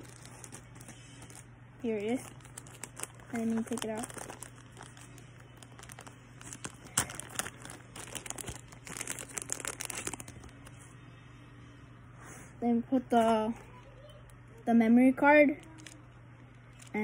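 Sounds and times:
plastic bag crinkling: 0.0 - 10.9, 15.5 - 17.0.

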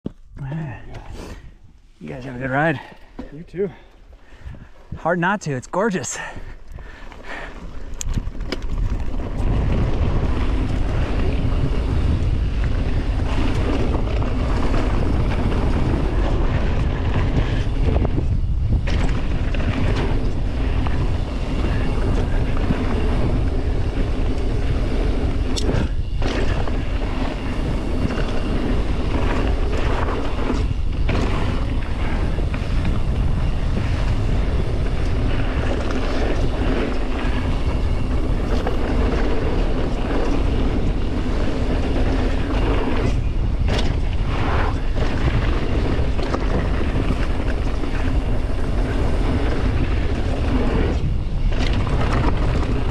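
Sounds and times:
bike rattling: 0.1 - 52.9
wind rushing over microphone: 0.1 - 52.9
tyres rolling over gravel: 6.2 - 52.9.

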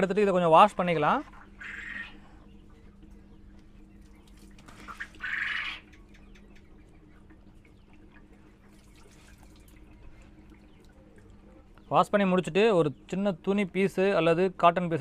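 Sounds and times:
water splashing and dripping: 2.6 - 11.9.

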